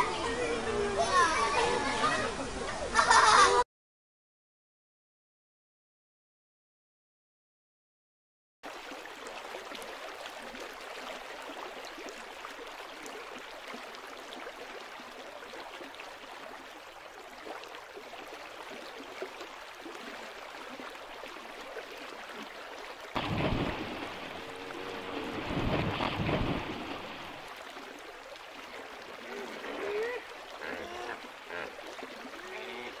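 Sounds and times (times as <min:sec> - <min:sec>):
river water rushing: 0:08.7 - 0:33.0
heavy splashing in water: 0:23.1 - 0:33.0.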